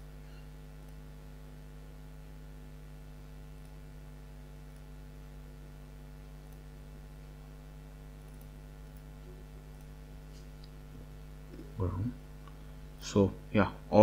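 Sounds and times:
mains hum: 0.0 - 14.0
computer mouse clicks: 4.7 - 4.9, 8.2 - 9.1.

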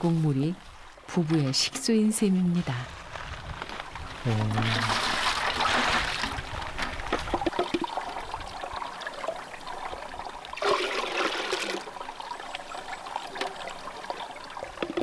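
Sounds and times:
trickling stream water: 2.9 - 15.0
water poured into plastic bucket: 3.6 - 15.0
water splash: 4.3 - 15.0.

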